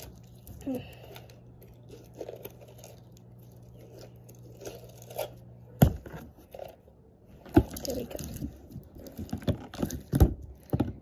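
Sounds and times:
squishy slime crackles: 0.0 - 6.9.

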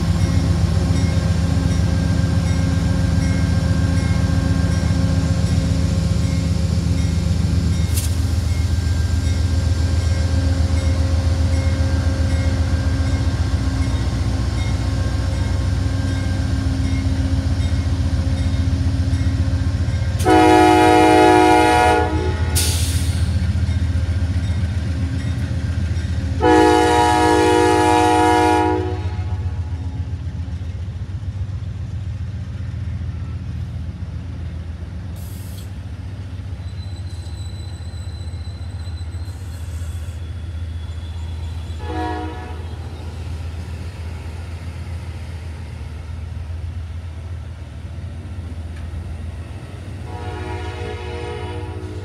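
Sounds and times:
diesel locomotive rumbling: 0.0 - 52.0
train chime horn blasts: 20.2 - 22.8, 26.4 - 29.7, 41.8 - 42.8, 50.0 - 52.0.

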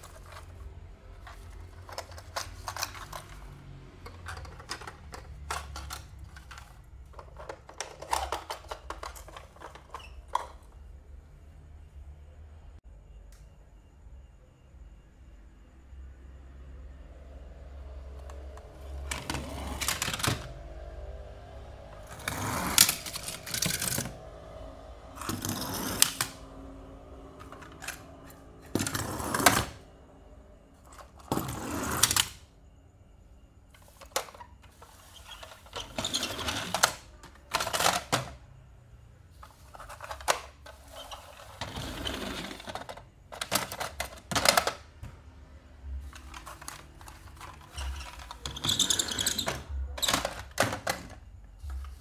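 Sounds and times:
toy cars clattering: 0.0 - 10.8, 18.2 - 20.6, 22.0 - 24.2, 25.2 - 26.4, 27.2 - 29.8, 33.8 - 38.5, 39.4 - 44.9, 46.0 - 52.0
toys scraping: 18.3 - 20.5, 22.0 - 24.2, 25.1 - 26.5, 27.3 - 29.8, 39.4 - 44.7, 46.0 - 50.8.

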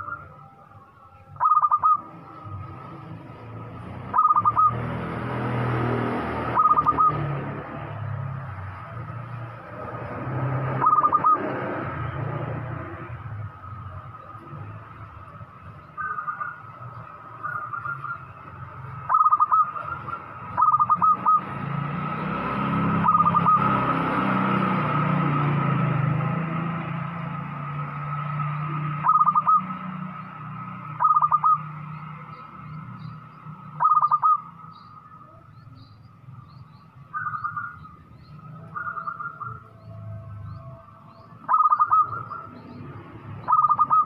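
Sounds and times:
faint high bird chirps: 0.0 - 5.1, 6.1 - 7.4, 10.7 - 24.3, 28.5 - 44.0
dove cooing: 1.4 - 2.1, 10.8 - 11.6, 19.1 - 21.5, 29.0 - 29.7, 31.0 - 31.7, 33.8 - 34.5, 41.5 - 42.5, 43.5 - 44.0.

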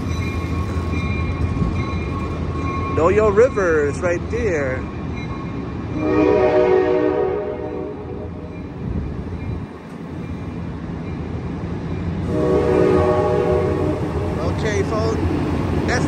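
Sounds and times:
train cars rumbling past: 0.0 - 16.0
train horn chord: 6.0 - 8.5, 12.2 - 14.4.

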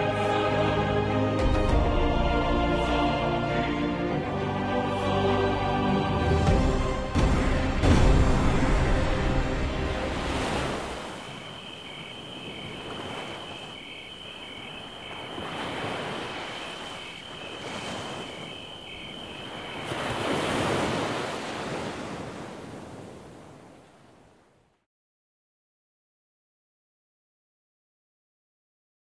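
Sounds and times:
sea waves washing ashore: 2.5 - 24.6.

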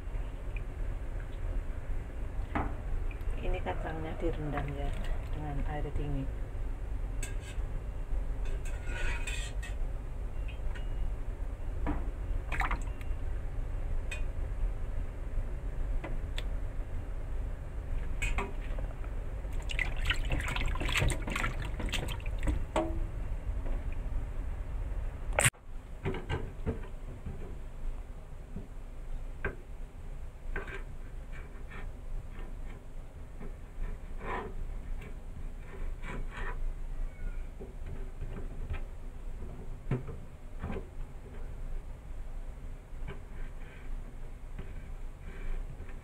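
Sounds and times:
low steady hum: 0.0 - 46.0
water splashing and dripping: 12.5 - 12.9, 19.5 - 22.6.

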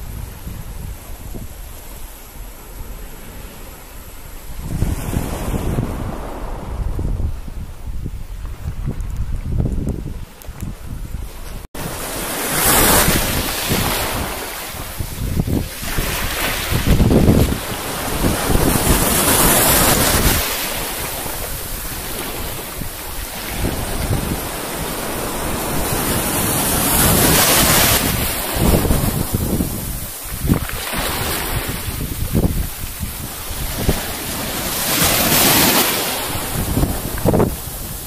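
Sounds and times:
wind buffeting microphone: 0.0 - 38.0
waves breaking on pebbly shore: 11.6 - 38.0.

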